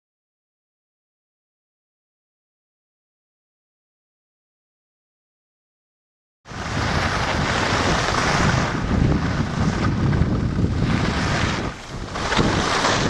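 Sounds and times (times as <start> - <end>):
skis hissing on snow: 6.5 - 13.0
wind buffeting microphone: 6.5 - 13.0.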